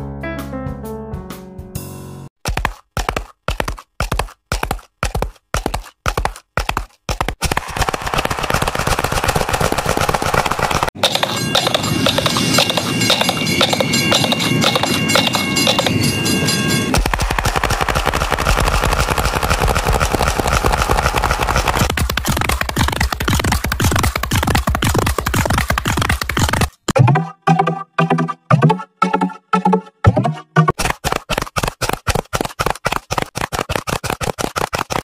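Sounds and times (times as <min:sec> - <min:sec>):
horse hoofbeats galloping: 0:02.4 - 0:16.1, 0:16.9 - 0:27.0, 0:30.7 - 0:35.0
passing train: 0:11.0 - 0:17.0
steady high tones: 0:11.0 - 0:17.0.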